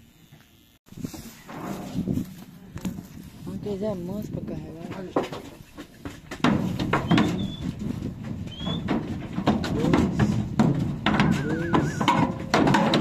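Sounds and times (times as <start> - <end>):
hooves knocking on metal bars: 4.4 - 13.0
cattle banging slatted sides: 4.9 - 13.0.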